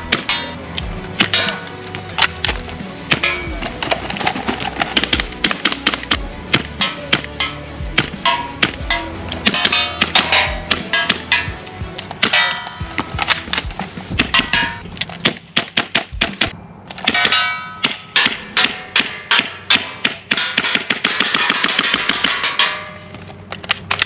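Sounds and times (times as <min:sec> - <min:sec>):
music playing: 0:00.0 - 0:14.8
airsoft rifle shots: 0:15.2 - 0:22.7.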